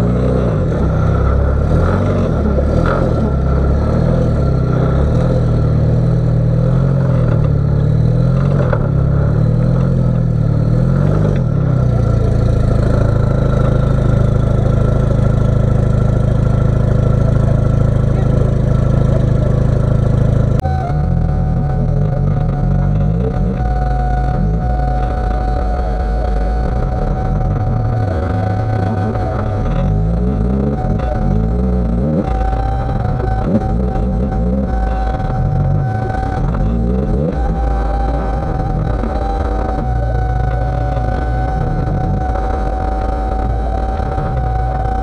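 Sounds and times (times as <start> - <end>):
buggy engine revving: 0.0 - 45.0.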